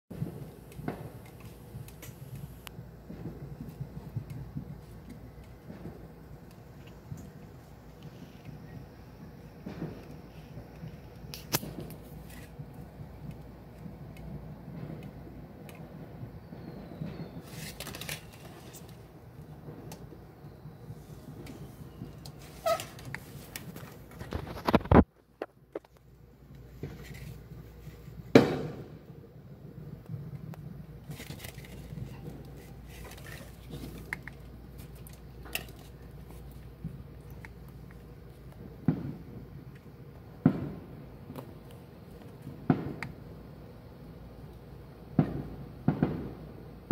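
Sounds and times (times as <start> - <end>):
faint firework pops: 0.2 - 8.7, 9.6 - 19.0, 28.1 - 29.1, 38.5 - 39.6, 40.4 - 41.8, 42.4 - 43.2, 45.1 - 46.9
firework bang: 3.0 - 4.9, 9.6 - 10.3, 28.2 - 29.1, 38.8 - 39.6, 40.4 - 41.0, 42.5 - 43.0, 45.1 - 46.9.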